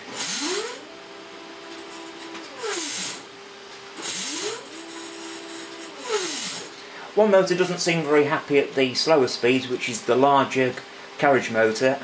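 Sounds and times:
harsh hissing rasp: 0:00.0 - 0:00.8, 0:02.5 - 0:03.3, 0:04.0 - 0:06.8
stepper motor whine: 0:00.0 - 0:06.9.

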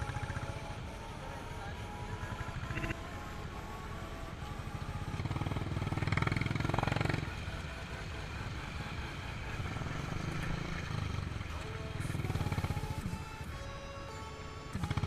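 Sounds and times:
motorcycle engine puttering: 0:05.1 - 0:13.4, 0:14.7 - 0:15.0.

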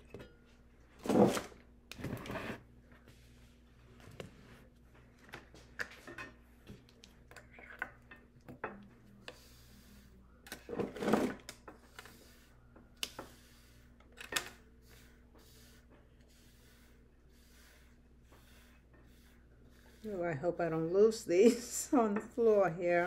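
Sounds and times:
brush sweeping rhinestones: 0:14.6 - 0:21.7.

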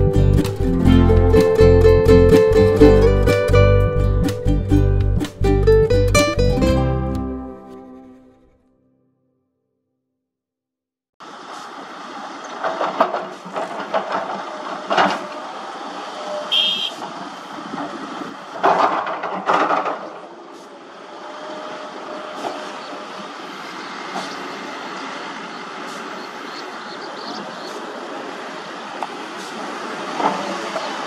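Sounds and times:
diesel engine running: 0:00.0 - 0:07.1, 0:11.2 - 0:31.0
earth crashing into truck bed: 0:18.6 - 0:20.4.

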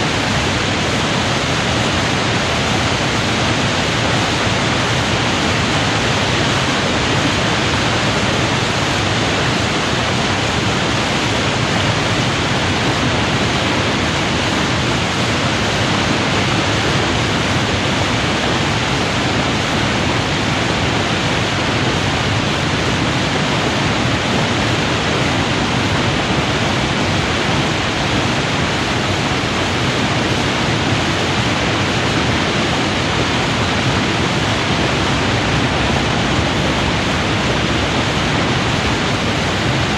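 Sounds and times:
river water pouring over weir: 0:00.0 - 0:39.9.

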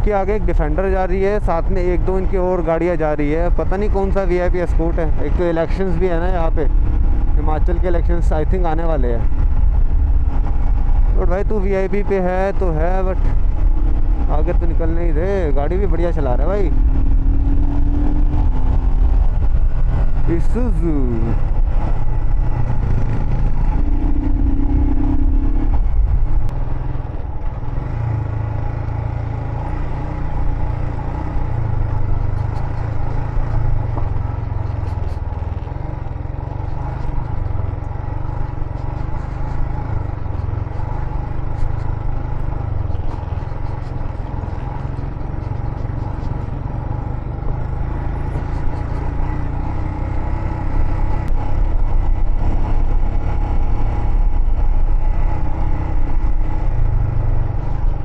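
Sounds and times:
motorcycle engine running: 0:00.0 - 0:58.0
wind noise on microphone: 0:13.1 - 0:20.4, 0:21.1 - 0:27.8.

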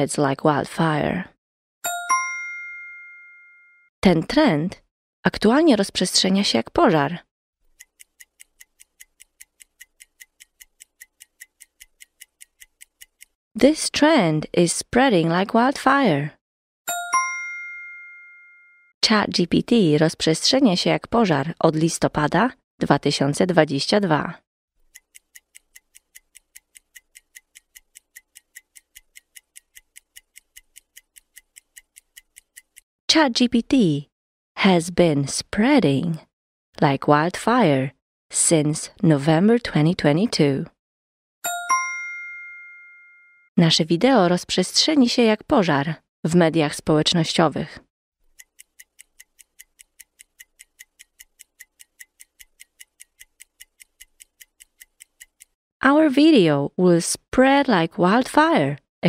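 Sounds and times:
faint ticking clock timer: 0:01.9 - 0:03.7, 0:07.6 - 0:13.9, 0:16.9 - 0:18.7, 0:24.8 - 0:33.9, 0:41.5 - 0:43.3, 0:48.2 - 0:55.6.

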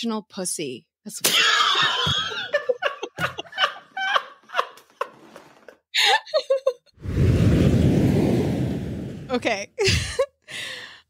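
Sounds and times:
hearty laughter: 0:01.6 - 0:06.9.

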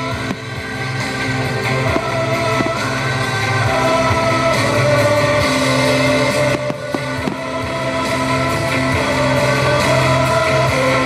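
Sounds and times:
firework bangs: 0:00.0 - 0:03.6
rock music with guitar: 0:00.0 - 0:11.0.

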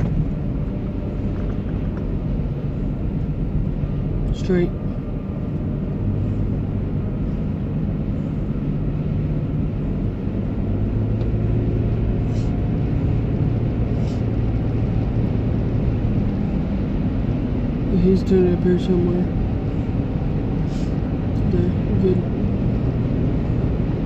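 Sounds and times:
car engine and tyre noise: 0:00.0 - 0:24.0.

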